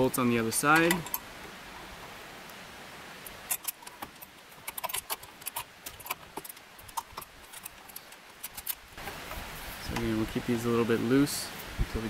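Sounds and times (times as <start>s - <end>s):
metal bolts and nuts clinking: 0.0s - 2.0s, 3.3s - 8.9s.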